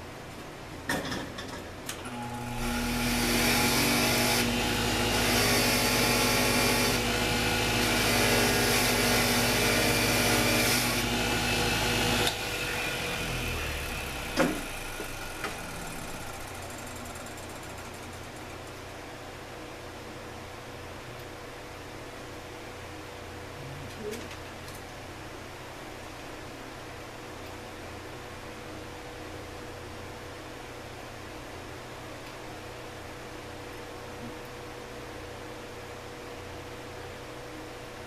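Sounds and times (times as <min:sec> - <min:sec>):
power tool motor running: 0:02.0 - 0:18.1.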